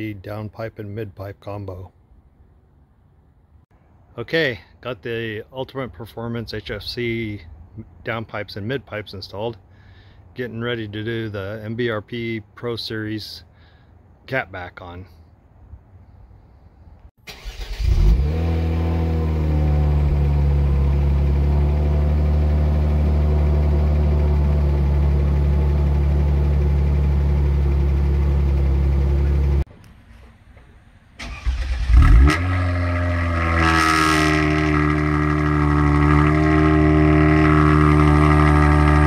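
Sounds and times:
car starter cranking: 17.2s - 18.3s, 31.2s - 32.5s
car engine starting and idling: 17.2s - 39.0s.

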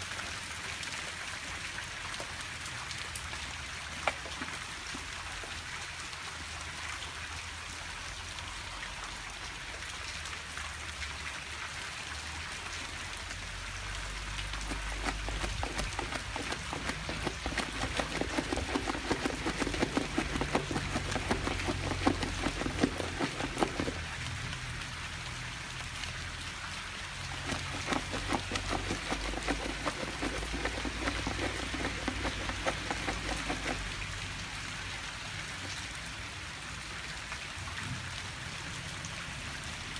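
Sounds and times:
rain hissing on grass: 0.0s - 39.9s
dog scratching at a board: 14.5s - 24.1s, 27.3s - 34.0s.

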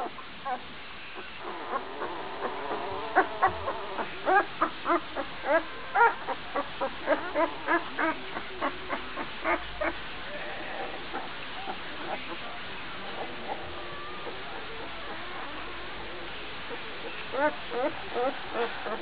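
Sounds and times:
puppy yelping: 1.4s - 10.0s.

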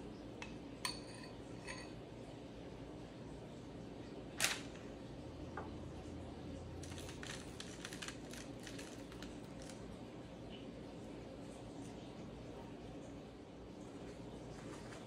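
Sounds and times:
soft rustling on paper: 14.0s - 15.0s.

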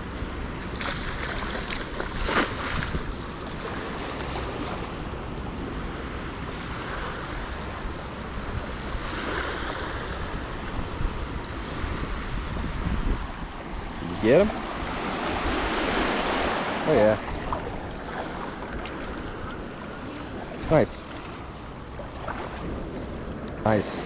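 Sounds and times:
net splashing on water: 0.8s - 3.0s
wind on microphone: 1.8s - 3.4s, 6.4s - 20.6s.

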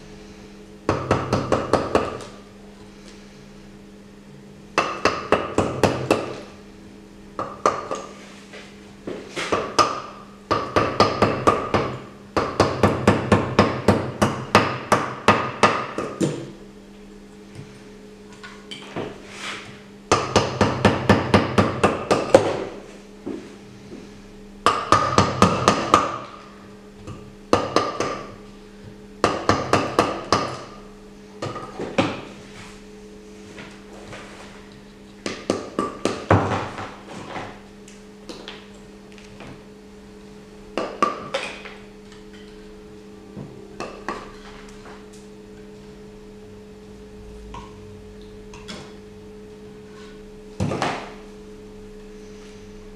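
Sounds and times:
mallet striking chisel on plaster: 24.6s - 26.3s.

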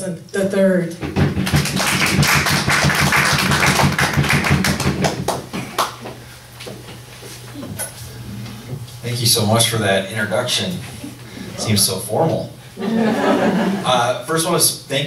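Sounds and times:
audience applauding: 1.4s - 6.0s.

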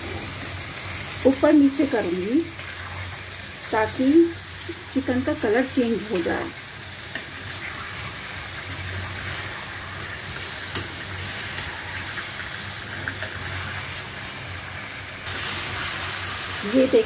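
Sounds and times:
chicken sizzling in oil: 0.0s - 17.0s.

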